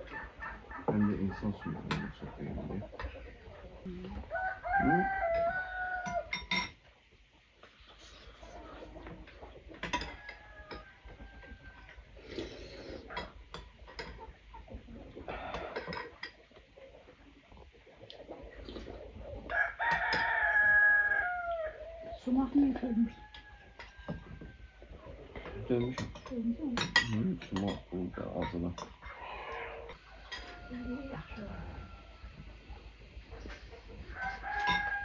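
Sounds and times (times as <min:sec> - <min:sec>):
rooster crowing: 0:04.2 - 0:06.4, 0:10.0 - 0:12.1, 0:19.5 - 0:22.2, 0:22.8 - 0:25.1, 0:29.0 - 0:32.6, 0:34.1 - 0:35.0
metal spoon clinking on bowl: 0:05.3 - 0:06.8, 0:25.7 - 0:29.0.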